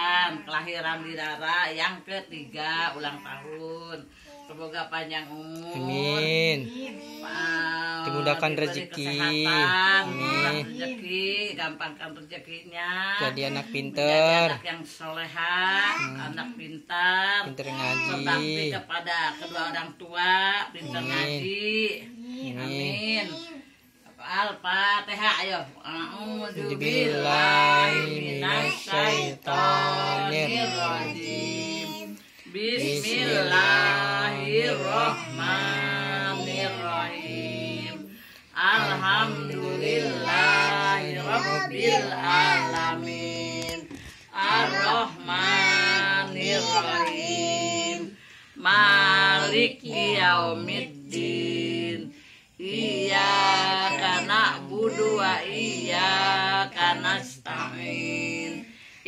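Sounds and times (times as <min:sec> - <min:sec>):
group singing unaccompanied: 0:05.7 - 0:06.6, 0:07.2 - 0:11.6, 0:16.0 - 0:19.0, 0:20.6 - 0:21.9, 0:25.4 - 0:59.0.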